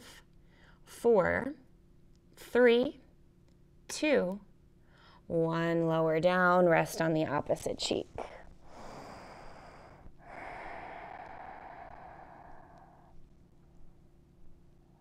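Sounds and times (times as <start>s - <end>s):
woman exhaling: 8.7s - 13.2s.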